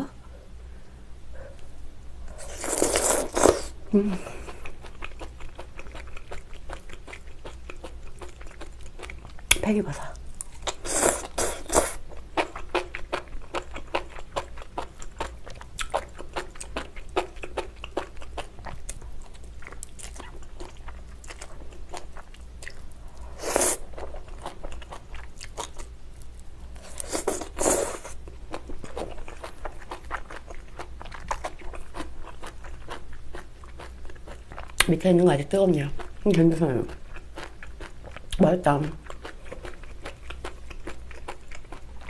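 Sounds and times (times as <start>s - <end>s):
person chewing food: 2.3s - 9.6s, 10.4s - 34.9s, 36.9s - 42.0s
person slurping: 2.4s - 4.6s, 10.8s - 12.0s, 23.3s - 23.9s, 26.9s - 28.2s.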